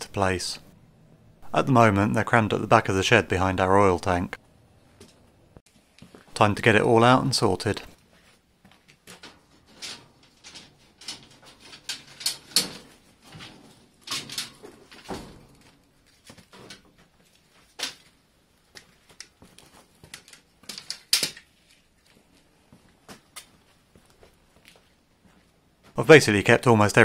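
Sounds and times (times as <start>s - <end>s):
stored items knocking and scraping: 8.1s - 18.2s.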